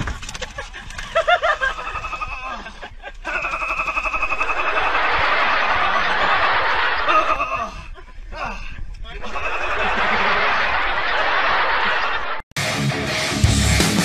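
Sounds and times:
person snickering: 0.6 - 8.6, 9.2 - 11.0.

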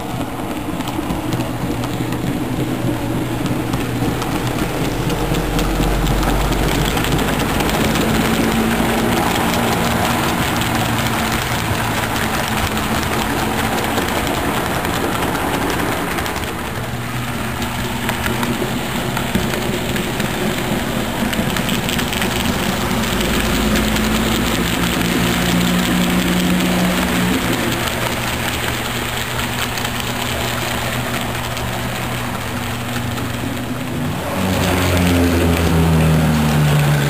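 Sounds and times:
model train running on track: 0.0 - 37.0
wheels rumbling and clattering: 0.0 - 37.0.

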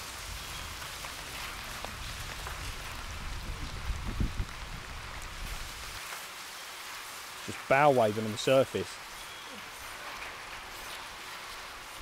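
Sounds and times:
heavy rain falling: 0.0 - 12.0.

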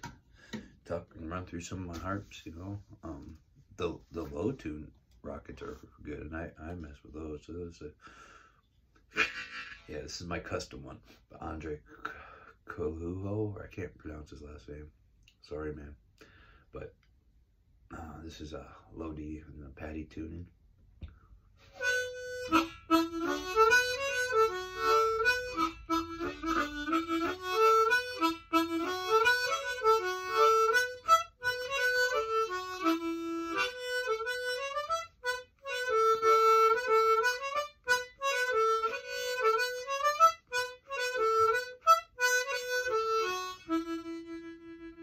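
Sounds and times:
harmonica playing: 21.6 - 45.0.

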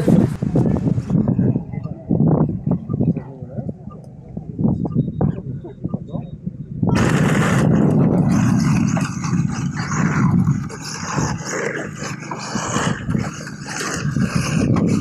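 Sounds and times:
rc car rumbling over gravel: 7.0 - 15.0.

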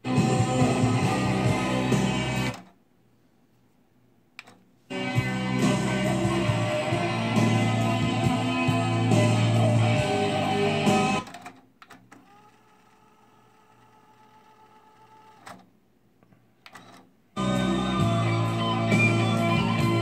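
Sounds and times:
guitar rock music from tape: 0.0 - 2.7, 4.9 - 11.4, 17.4 - 20.0
tape winding whir: 4.9 - 15.6.

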